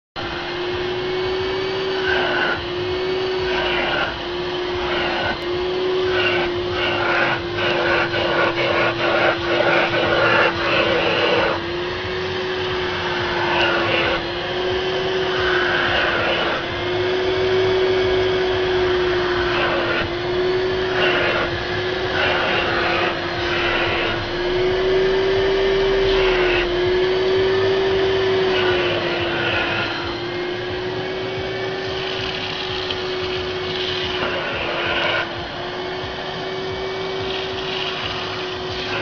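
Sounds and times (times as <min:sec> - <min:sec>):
vacuum cleaner whining: 0:00.2 - 0:39.0
rushing air surges: 0:20.9 - 0:30.1.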